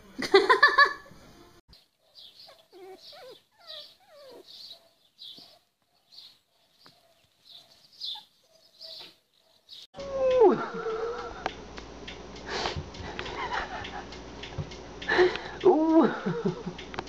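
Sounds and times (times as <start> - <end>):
high squeaky animal cries: 2.5 - 4.7.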